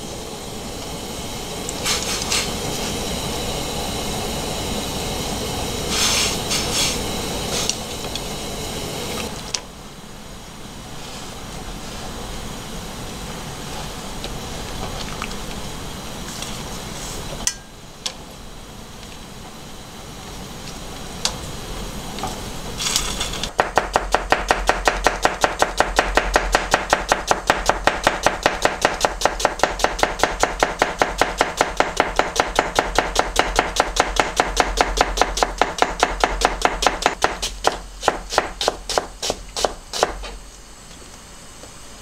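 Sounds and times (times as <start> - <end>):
knife chopping onion on board: 23.5 - 40.2.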